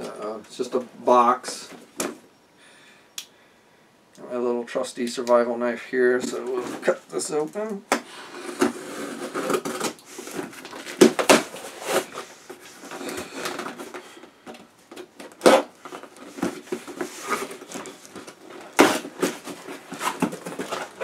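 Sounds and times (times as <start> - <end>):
cardboard scraping and rustling: 6.2 - 7.0, 8.3 - 14.1, 15.2 - 21.0.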